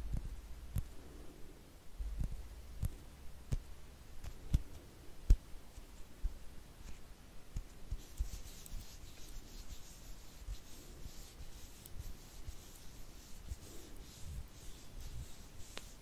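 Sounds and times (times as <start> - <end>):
light brushing rustle: 5.6 - 16.0.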